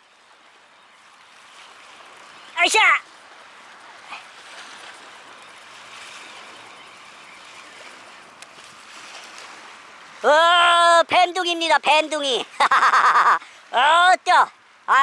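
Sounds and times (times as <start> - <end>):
wind and sea rushing: 0.0 - 15.0
man calling out: 2.6 - 3.0, 10.2 - 12.5, 13.7 - 15.0
faint click: 8.4 - 8.6.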